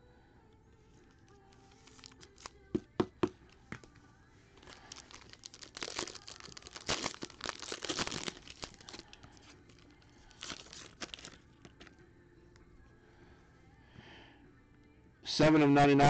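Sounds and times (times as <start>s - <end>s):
foil wrapper tearing and crinkling: 1.8s - 2.5s, 4.6s - 11.8s.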